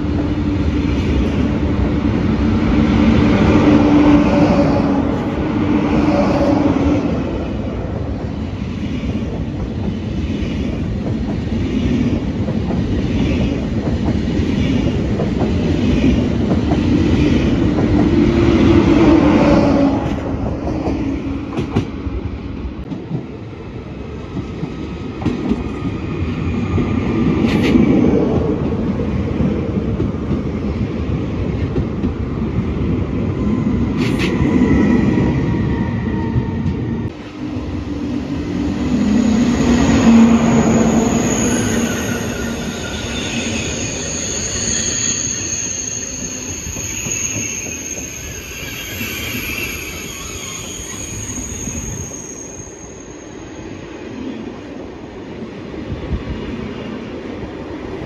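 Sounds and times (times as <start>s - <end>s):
train rumbling: 0.0s - 58.0s
wheels squealing on rails: 38.2s - 54.3s.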